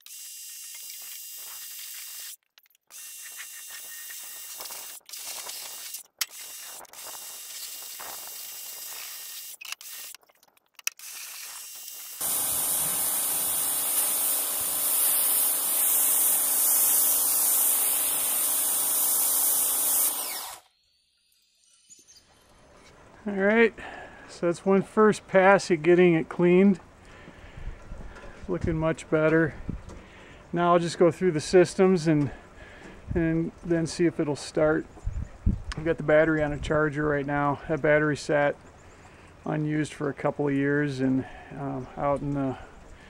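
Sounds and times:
pressure washer jet hissing: 12.2 - 20.6
pressure washer motor running: 12.2 - 20.6.

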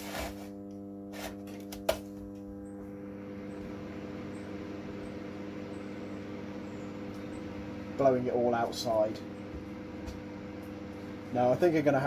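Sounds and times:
fan blowing airy hiss: 0.0 - 0.6, 3.5 - 9.2
transformer mains hum: 0.0 - 12.0.

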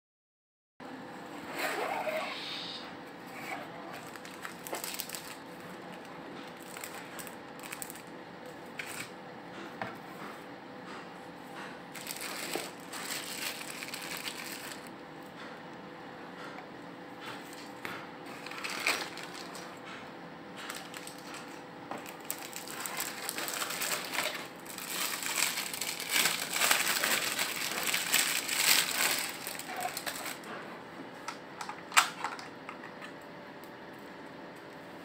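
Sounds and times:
plastic wrap crinkling: 4.0 - 8.1, 11.9 - 14.9, 18.3 - 19.8, 20.7 - 30.5.

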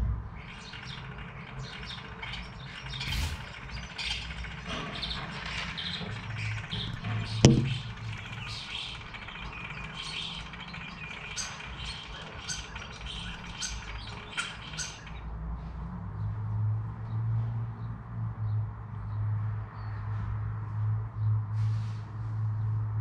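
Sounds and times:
birds chirping: 0.4 - 15.3.

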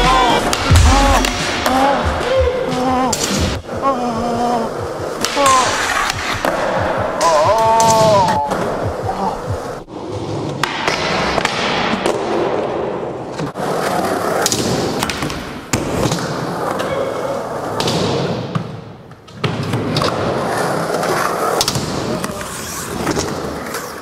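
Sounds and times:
skateboard wheels rolling on concrete: 12.4 - 17.8, 19.1 - 24.0.

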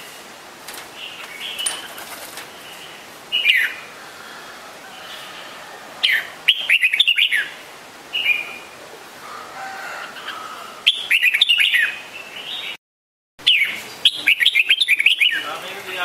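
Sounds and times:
bird whistled calls: 6.0 - 7.6, 10.9 - 12.8, 13.4 - 15.5.

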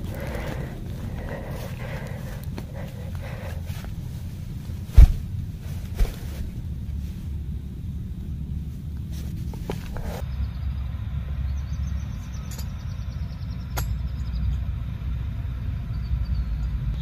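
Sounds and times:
low outdoor rumble: 0.0 - 17.0.

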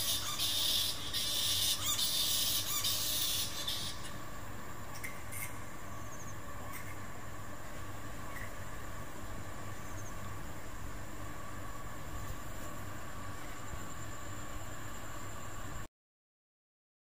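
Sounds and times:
bats squeaking: 0.0 - 4.2, 8.2 - 8.6.

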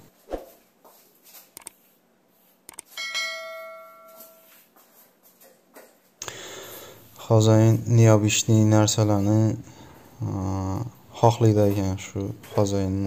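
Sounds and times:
bell chime: 3.0 - 4.6.

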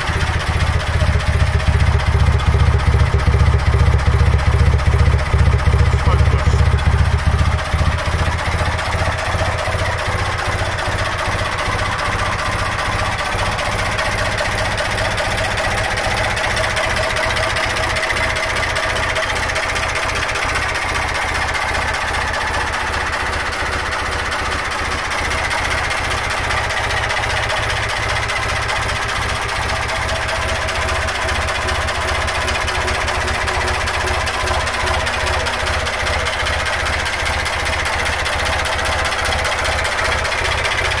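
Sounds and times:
diesel engine knocking: 0.0 - 41.0.

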